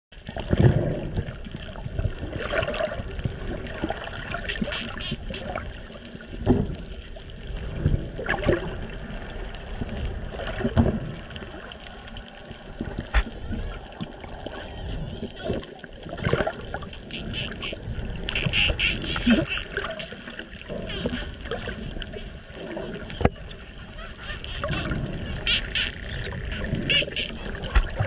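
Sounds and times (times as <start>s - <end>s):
bubbling water underwater: 0.1s - 28.0s
dolphins whistling underwater: 4.2s - 6.0s, 7.2s - 15.6s, 16.2s - 28.0s.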